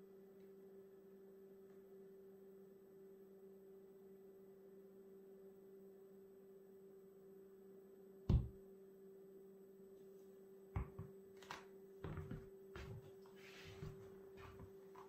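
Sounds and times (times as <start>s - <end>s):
faint steady hum: 0.0s - 15.0s
cleat thud on wooden floor: 10.8s - 11.1s
cleated footsteps on wooden floor: 12.0s - 15.0s.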